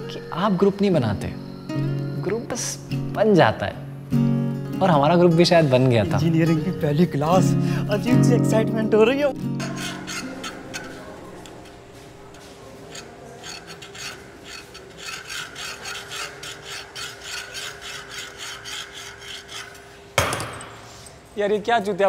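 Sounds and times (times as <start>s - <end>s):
hand files rasping: 9.5s - 11.2s, 12.7s - 20.1s.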